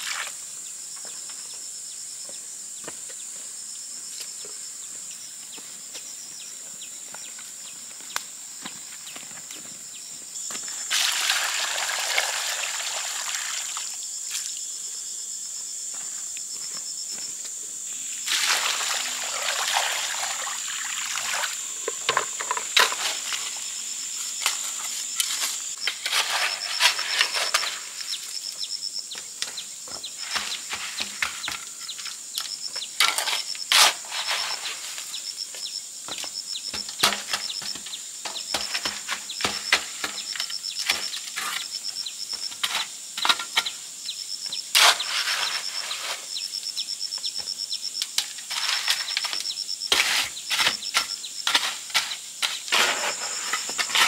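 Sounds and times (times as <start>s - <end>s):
insects buzzing: 0.0s - 54.0s
water pouring from bucket: 10.9s - 14.0s, 18.2s - 23.5s
shovel scraping wet mortar: 18.2s - 23.7s, 24.3s - 28.2s, 30.0s - 32.2s, 33.0s - 35.2s, 36.7s - 43.8s, 44.7s - 46.4s, 48.2s - 54.0s.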